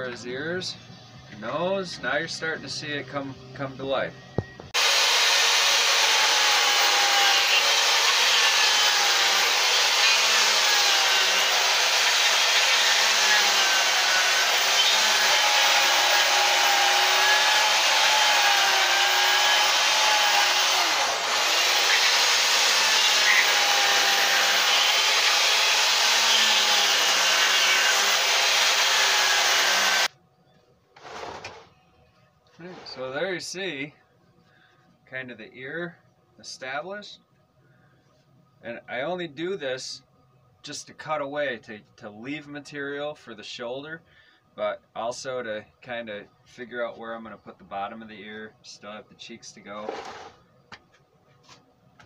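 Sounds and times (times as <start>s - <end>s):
electric chainsaw cutting wood: 4.8s - 30.1s, 49.9s - 50.3s.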